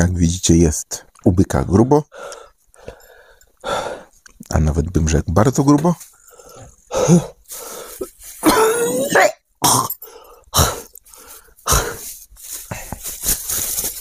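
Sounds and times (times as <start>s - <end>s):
man coughing and retching: 8.0s - 11.0s, 11.6s - 12.1s.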